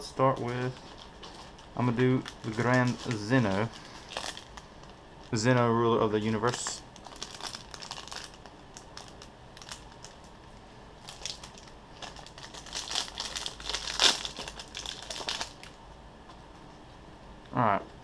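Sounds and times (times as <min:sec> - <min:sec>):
plastic wrapper crinkling: 0:00.0 - 0:15.8.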